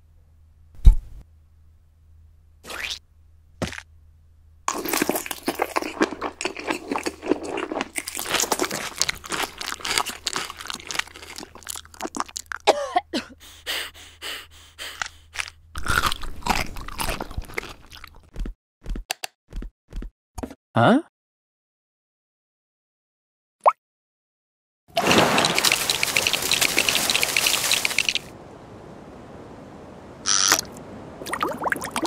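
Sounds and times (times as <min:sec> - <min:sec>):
crunching and chewing: 0:04.7 - 0:12.7, 0:14.9 - 0:18.5.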